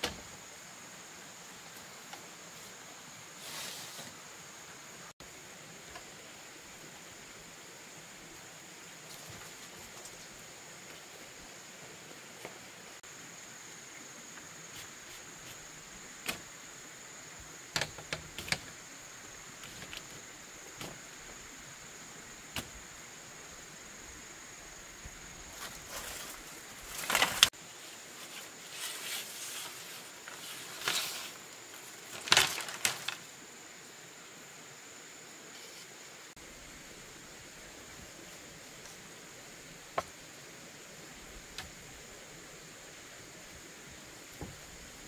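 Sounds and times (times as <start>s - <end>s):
bamboo poles knocking and clattering: 17.7s - 18.8s, 19.6s - 21.1s, 32.1s - 33.2s.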